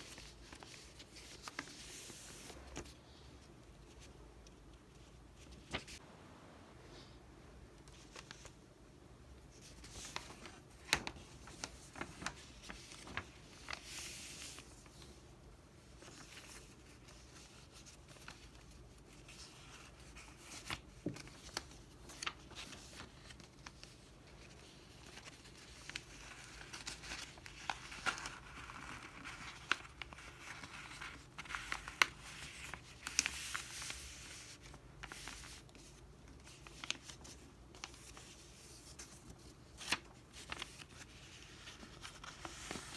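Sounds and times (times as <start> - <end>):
paper crinkling: 0.0 - 3.0, 9.5 - 42.9.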